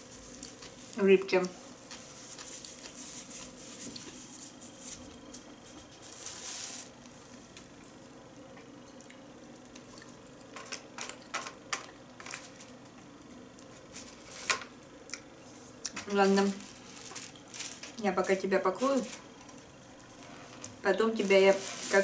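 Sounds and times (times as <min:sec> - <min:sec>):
wet chewing: 0:00.3 - 0:04.2.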